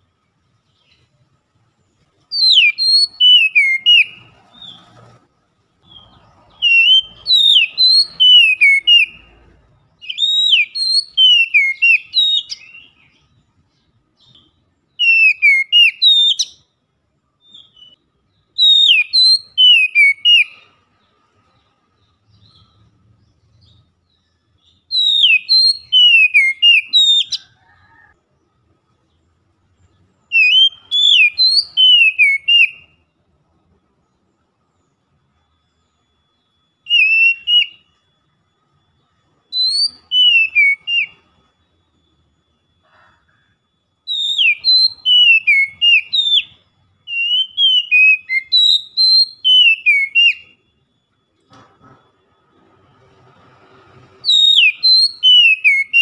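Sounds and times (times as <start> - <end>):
bird singing whistled phrases: 2.3 - 4.8, 5.8 - 13.4, 14.2 - 16.8, 17.4 - 20.8, 22.0 - 28.1, 30.2 - 33.0, 35.7 - 38.0, 39.5 - 42.4, 44.1 - 50.9, 54.2 - 56.0.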